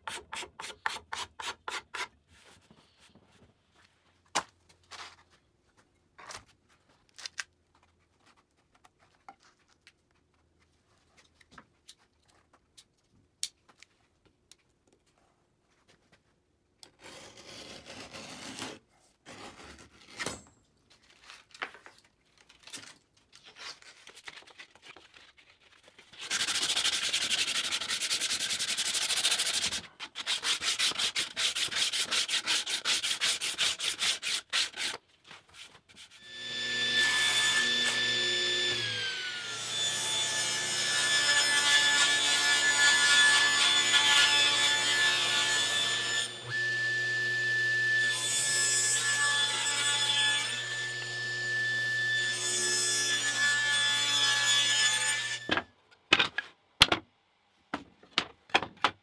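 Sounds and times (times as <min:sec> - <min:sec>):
sanding wood: 0:26.2 - 0:35.0.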